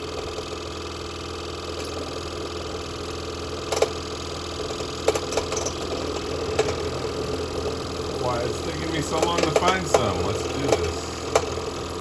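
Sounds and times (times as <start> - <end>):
scroll saw cutting plywood: 5.9 - 11.6.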